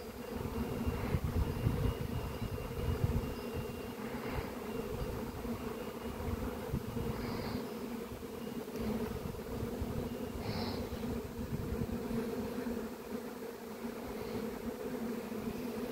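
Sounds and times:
bees buzzing: 0.0 - 15.9
wind rumble on microphone: 0.3 - 12.3.

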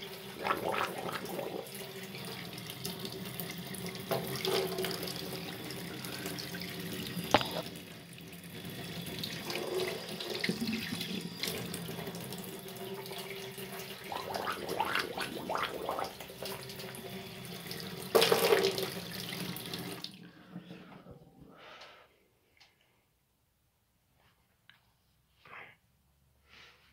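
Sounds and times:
tap water running into sink: 0.0 - 20.2
water splashes: 0.4 - 1.7, 14.0 - 16.9.

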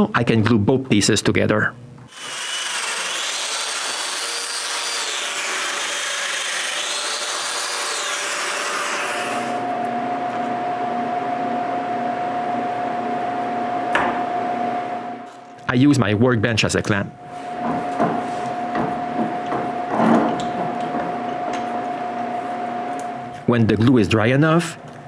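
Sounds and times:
steady hum: 0.0 - 25.0
power joiner motor whine: 2.1 - 9.8.

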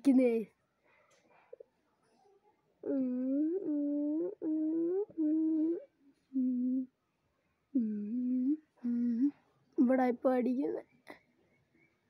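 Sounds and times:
person humming: 2.8 - 6.9, 7.8 - 9.3.

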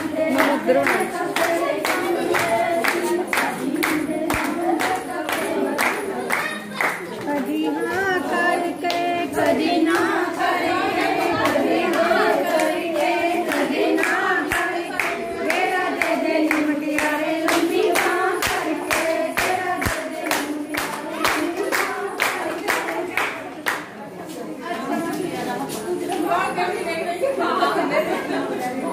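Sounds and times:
hand clapping: 0.0 - 7.5, 11.0 - 23.9
women singing in chorus: 0.0 - 23.9.

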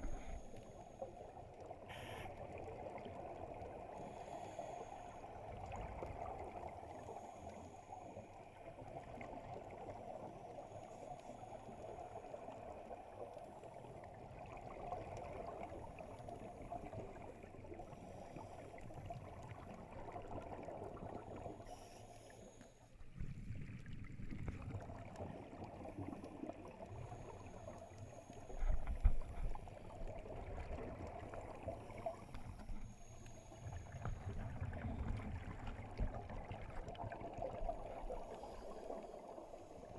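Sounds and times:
deep underwater rumble: 0.0 - 39.9
underwater bubbles from regulators: 23.0 - 39.9.

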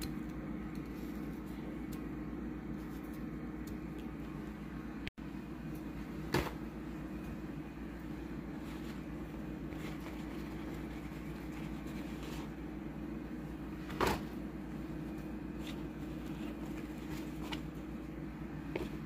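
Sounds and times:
steady low hum: 0.0 - 19.0
paper towel rustling: 8.1 - 12.7, 13.7 - 18.0.

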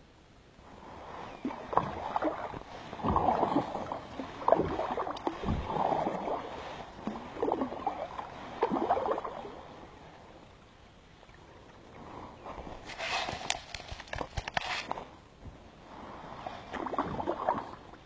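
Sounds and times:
paddle splashing through water: 1.4 - 9.6, 12.4 - 15.1, 16.6 - 17.9.

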